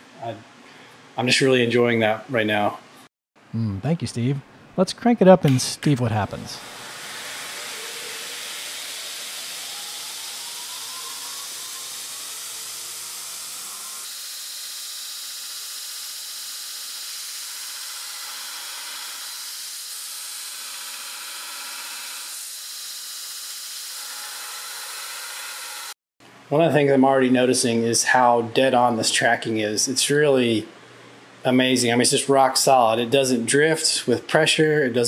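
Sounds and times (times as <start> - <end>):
belt grinder motor whine: 6.6 - 26.0.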